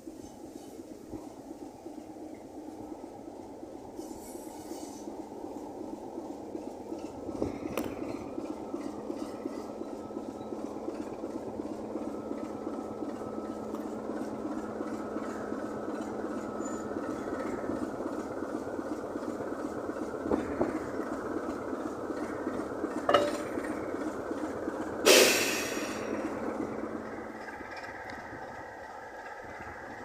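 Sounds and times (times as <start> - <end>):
diesel locomotive engine running: 0.0 - 30.0
wheels on rails: 0.0 - 30.0
metallic knocks: 23.1 - 23.8.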